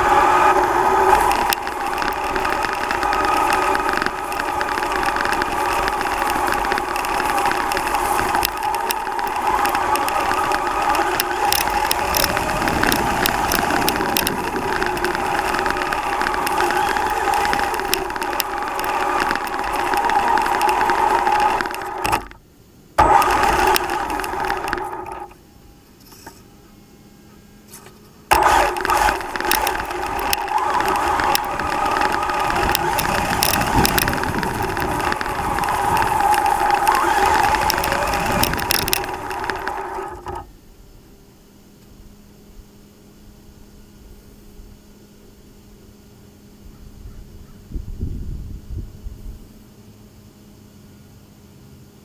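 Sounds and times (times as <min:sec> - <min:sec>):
chassis rattling and clicking: 0:00.0 - 0:22.4, 0:23.0 - 0:26.5, 0:27.7 - 0:40.5
toy truck motor whine: 0:00.0 - 0:22.4, 0:23.0 - 0:25.4, 0:27.6 - 0:40.5.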